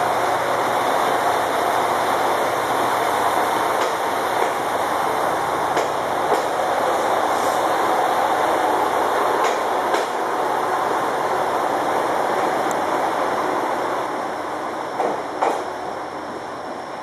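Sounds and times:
diesel railcars rolling: 0.0s - 17.0s
wheels clacking over rail joints: 2.8s - 6.7s, 9.3s - 10.3s.

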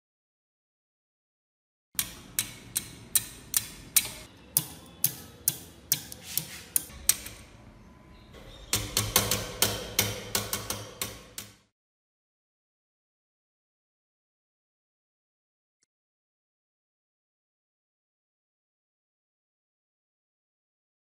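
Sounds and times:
metal taps on a steel padlock: 2.0s - 6.2s.

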